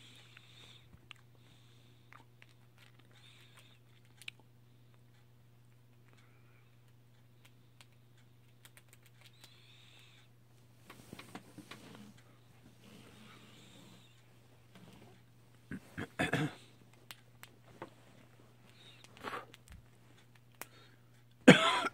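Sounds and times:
low steady hum: 0:00.0 - 0:21.9
squirrel nibbling clicks: 0:02.1 - 0:06.2, 0:06.8 - 0:10.2, 0:18.7 - 0:20.8.

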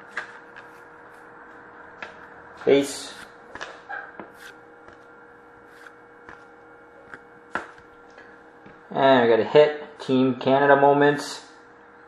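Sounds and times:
trading cards being handled: 0:00.0 - 0:07.9
faint steady hum: 0:00.0 - 0:12.0.

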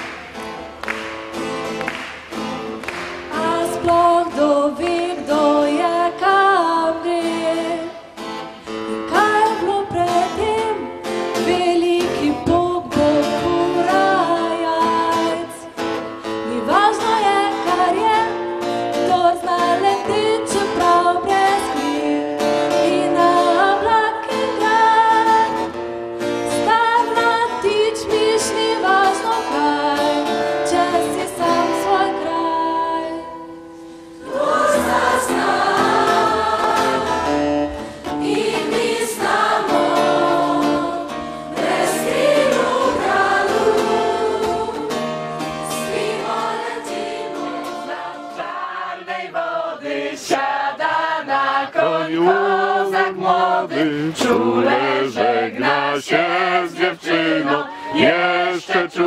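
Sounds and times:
backing music: 0:33.7 - 0:48.7
choir singing: 0:34.1 - 0:59.0.

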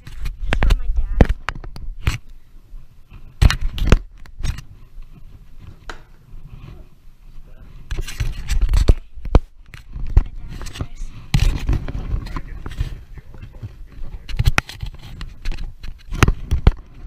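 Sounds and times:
rustling and knocking: 0:07.8 - 0:17.0.

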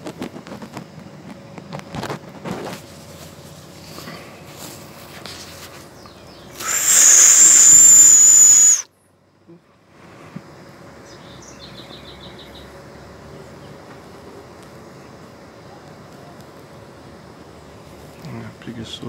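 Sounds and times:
faint high chirping trill: 0:06.6 - 0:08.8
person whistling loudly: 0:06.6 - 0:08.8.

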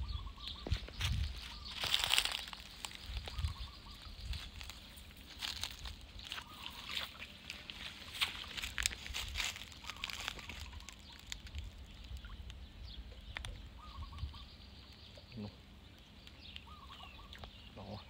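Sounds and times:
wet net rustling: 0:01.4 - 0:11.9
water sloshing and dripping: 0:05.8 - 0:12.5.

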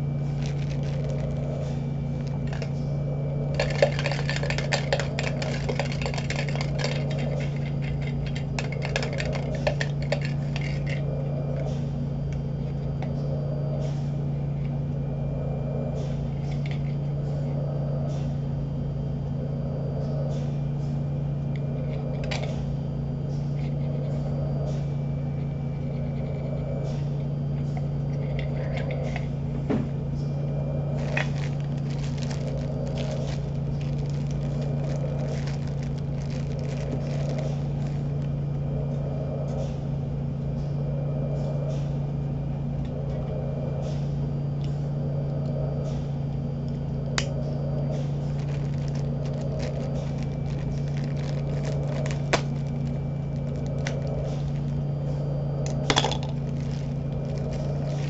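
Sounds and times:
rustling of handled items: 0:00.0 - 0:02.8, 0:03.5 - 0:11.1, 0:30.9 - 0:38.3, 0:47.9 - 0:54.8, 0:55.9 - 0:58.0
low machine hum: 0:00.0 - 0:58.0.

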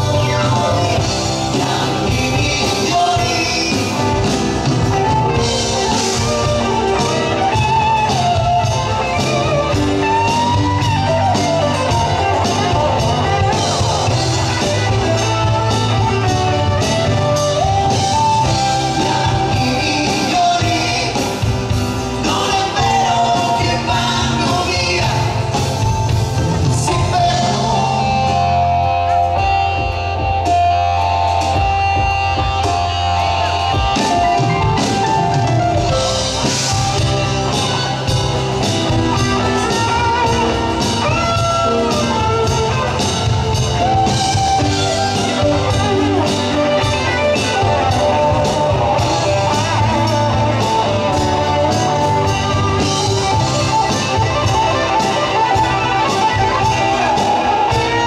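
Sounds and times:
drum kit beat: 0:00.0 - 0:58.0
electric guitars: 0:00.0 - 0:58.0.

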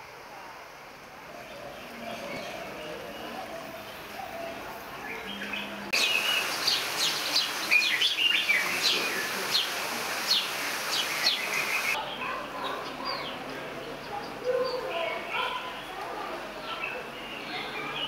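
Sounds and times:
birds chirping: 0:01.3 - 0:15.9
steady hiss: 0:06.0 - 0:12.0.

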